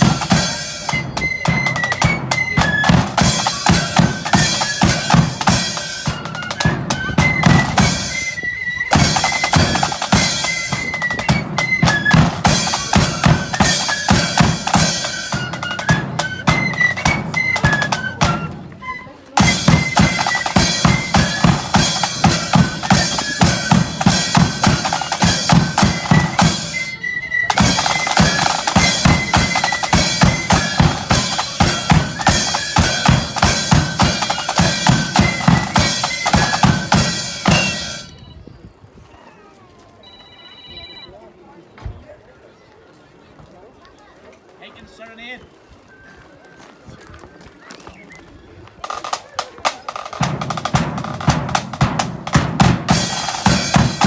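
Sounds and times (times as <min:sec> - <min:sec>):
cymbals: 0:00.0 - 0:18.6, 0:19.4 - 0:38.2, 0:49.9 - 0:54.0
snare drum rolls: 0:00.0 - 0:18.6, 0:19.4 - 0:38.1, 0:48.8 - 0:54.0
flutes playing melody: 0:00.0 - 0:38.6.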